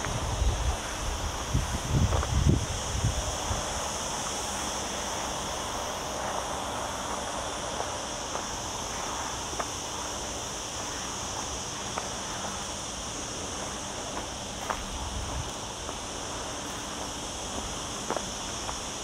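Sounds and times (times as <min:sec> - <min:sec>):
cicadas buzzing: 0:00.0 - 0:19.0
footsteps on gravel: 0:06.2 - 0:19.0.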